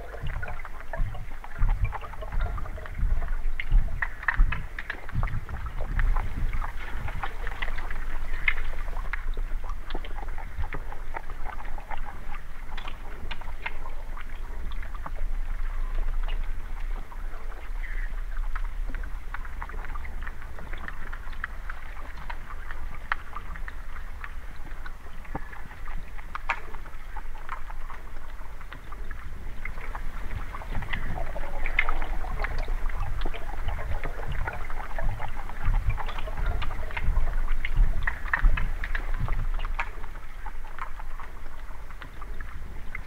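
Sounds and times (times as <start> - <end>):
muffled underwater water rumble: 0.0 - 43.0
small clicks and ticks: 0.0 - 43.0.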